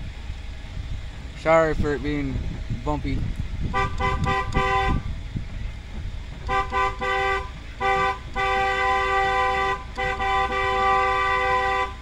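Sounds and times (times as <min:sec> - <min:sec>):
truck rumbling low: 0:00.0 - 0:12.0
truck horn blasts: 0:03.6 - 0:05.2, 0:06.4 - 0:12.0.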